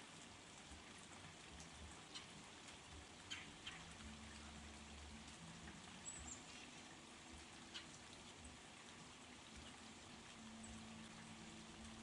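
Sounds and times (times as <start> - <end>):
light rain pattering: 0.0 - 12.0.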